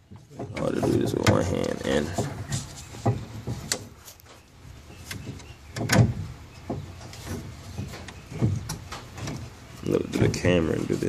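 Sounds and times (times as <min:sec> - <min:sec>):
wooden pieces knocking: 0:00.0 - 0:10.5
loud wooden thump: 0:05.2 - 0:09.5.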